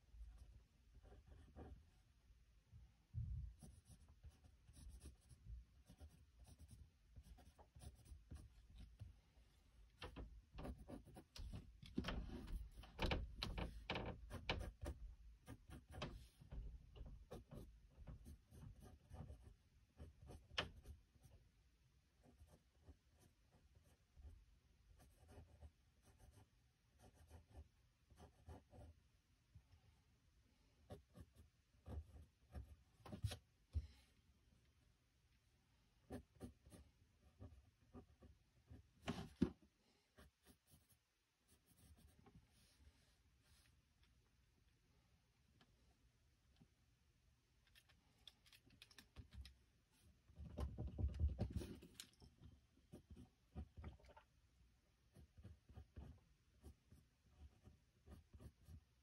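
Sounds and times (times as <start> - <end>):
pencil sketching on paper: 1.0 - 2.0, 3.6 - 8.7, 17.3 - 21.4, 22.2 - 24.4, 25.0 - 29.0, 30.9 - 32.9, 36.1 - 38.9, 40.2 - 42.2, 55.1 - 59.0.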